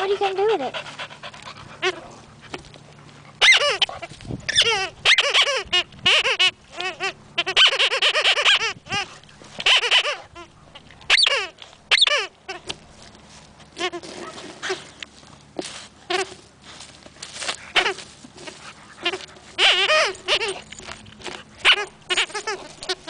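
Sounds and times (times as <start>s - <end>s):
rubber squeaky toy squeaking: 3.4s - 10.5s, 11.1s - 12.7s, 13.8s - 14.9s, 17.8s - 18.0s, 19.0s - 23.0s.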